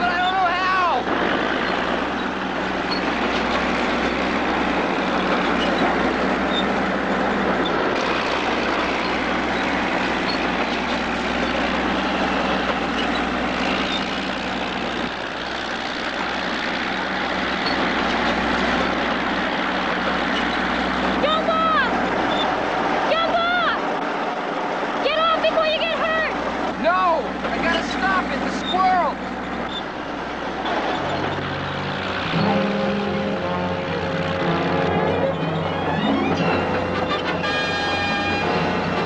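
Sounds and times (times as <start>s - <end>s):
bulldozer diesel engine rumbling: 0.0s - 39.0s.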